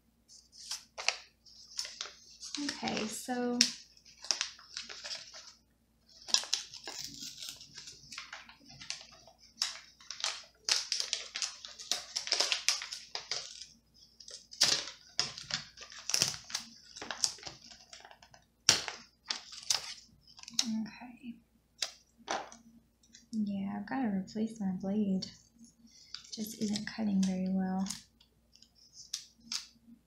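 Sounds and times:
paper rustling: 0.3s - 20.7s.

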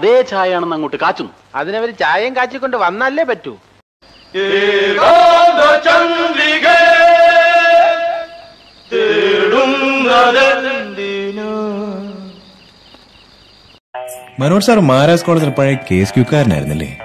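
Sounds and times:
voices chanting long notes: 4.3s - 12.6s.

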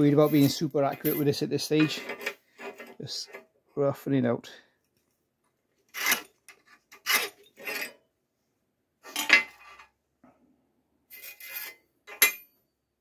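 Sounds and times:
scriber scratching metal: 0.0s - 3.4s, 5.9s - 8.0s, 11.1s - 11.8s.

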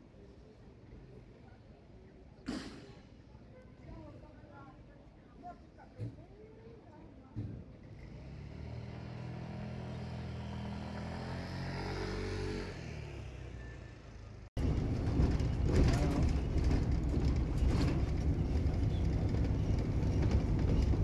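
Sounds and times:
vehicle engine passing: 8.0s - 21.0s
rough rumbling noise: 14.6s - 21.0s.

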